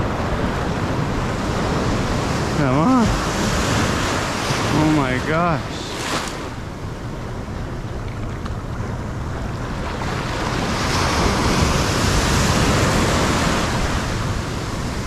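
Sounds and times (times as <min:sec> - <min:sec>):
ocean waves breaking: 0:00.0 - 0:15.0
wind buffeting microphone: 0:00.0 - 0:15.0.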